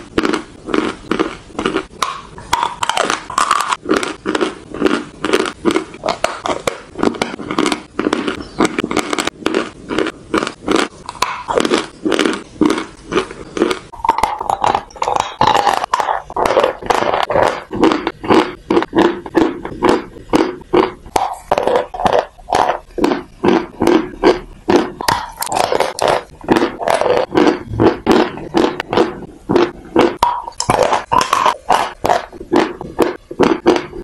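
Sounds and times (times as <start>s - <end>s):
chewing crisp crunches: 0.0s - 34.0s.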